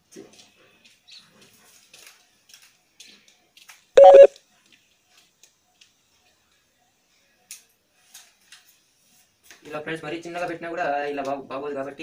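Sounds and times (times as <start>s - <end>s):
short loud beep: 4.0s - 4.3s.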